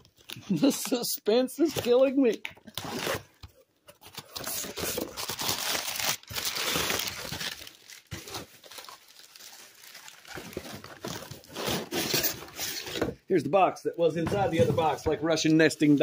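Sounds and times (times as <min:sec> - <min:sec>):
packing material crinkling: 0:04.0 - 0:13.0.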